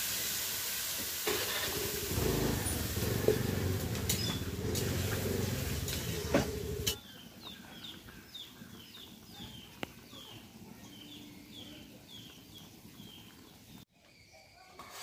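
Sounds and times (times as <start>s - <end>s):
small bird chirping: 4.0s - 4.8s.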